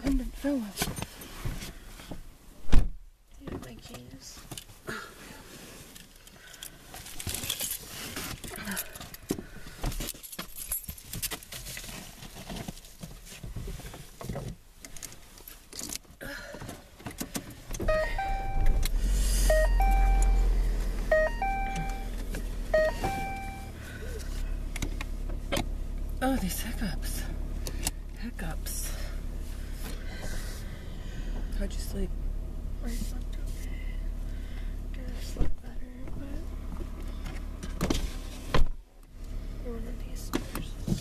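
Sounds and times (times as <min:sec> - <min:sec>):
car engine rumbling: 0:00.0 - 0:41.0
short electronic chime: 0:17.9 - 0:18.9, 0:19.5 - 0:20.5, 0:22.8 - 0:23.7.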